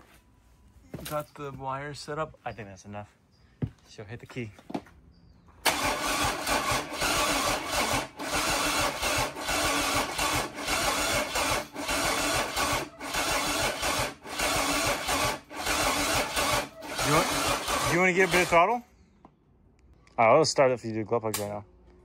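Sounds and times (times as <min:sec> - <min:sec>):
diesel engine cranking by starter: 0:05.6 - 0:18.8.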